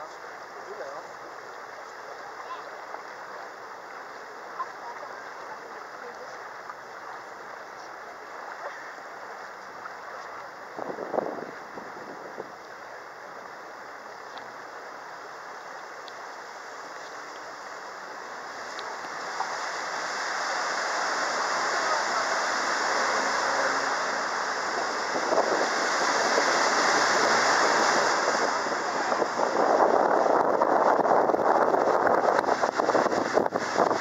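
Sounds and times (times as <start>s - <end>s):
water rushing along boat hull: 0.0s - 34.0s
wind buffeting microphone: 10.6s - 13.0s, 17.8s - 34.0s.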